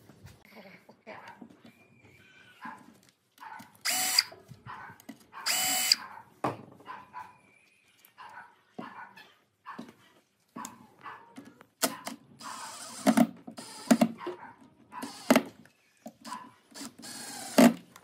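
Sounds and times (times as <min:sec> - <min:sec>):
cordless drill driving screws: 0:03.8 - 0:04.3, 0:05.4 - 0:06.0, 0:12.4 - 0:14.2, 0:15.0 - 0:18.0.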